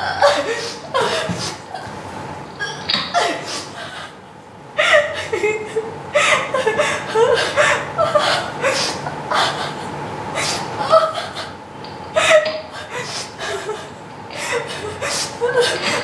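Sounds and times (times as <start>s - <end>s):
woman laughing breathily: 0.0s - 1.9s, 4.8s - 11.6s, 12.2s - 16.0s.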